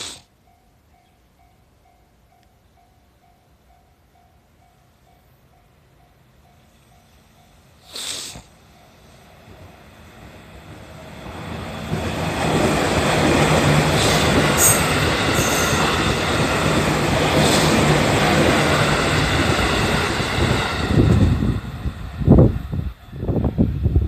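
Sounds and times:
train wheels rumbling on rails: 0:08.5 - 0:24.0
high wheel squeals: 0:13.9 - 0:16.2.

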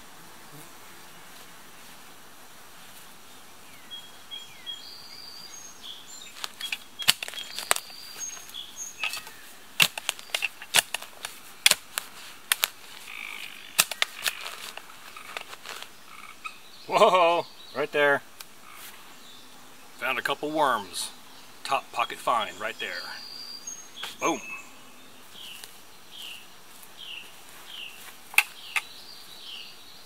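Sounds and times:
digging tool striking hard soil: 0:06.4 - 0:08.0, 0:09.0 - 0:12.8, 0:13.7 - 0:15.7
faint bird chirps: 0:21.3 - 0:26.4.

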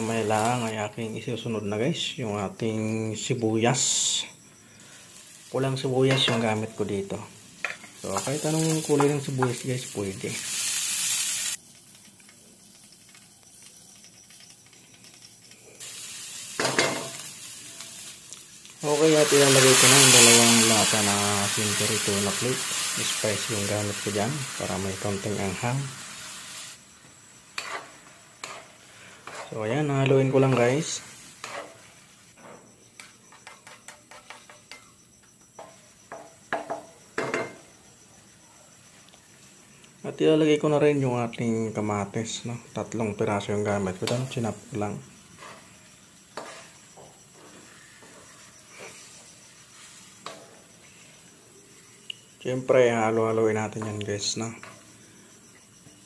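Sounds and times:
garlic and onion sizzling in oil: 0:00.0 - 0:56.0
wooden spatula stirring in wok: 0:27.6 - 0:29.7, 0:31.4 - 0:32.1.

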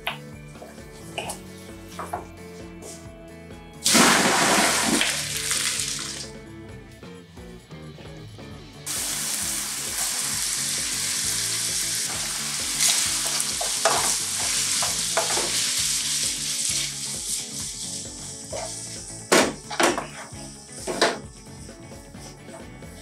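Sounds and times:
pasta sizzling in a frying pan: 0:08.9 - 0:18.9
wooden spoon knocking on pan: 0:13.6 - 0:15.5.

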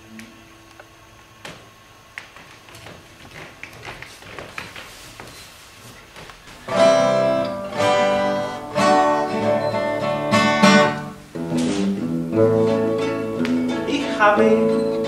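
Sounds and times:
acoustic guitars plucked and strummed: 0:06.4 - 0:15.0.

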